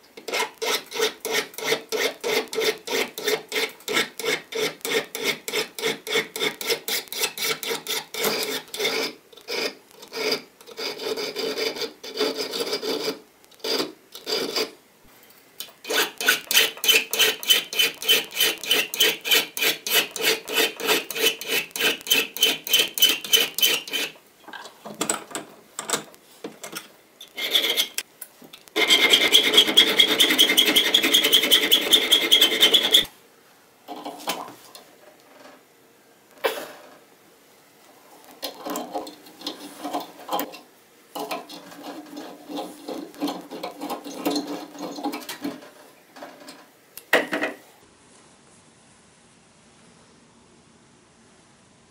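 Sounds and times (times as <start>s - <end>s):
hand file scraping metal screw: 0.2s - 14.8s, 15.6s - 24.2s, 26.7s - 28.0s, 28.8s - 33.1s, 38.4s - 40.6s, 41.2s - 46.6s.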